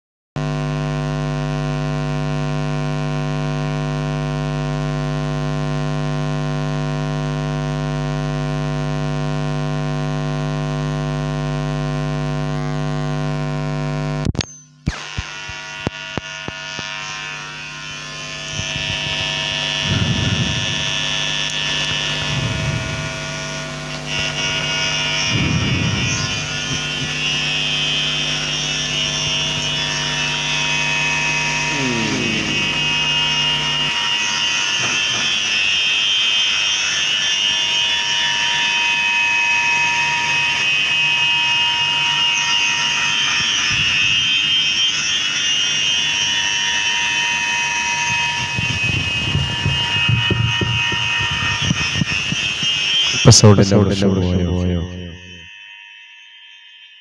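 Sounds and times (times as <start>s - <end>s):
loud electrical mains buzz: 0.4s - 55.6s.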